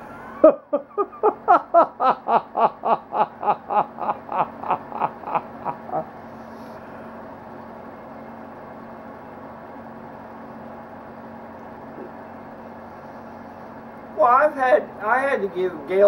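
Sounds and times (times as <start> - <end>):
man laughing hard: 0.0 - 6.2.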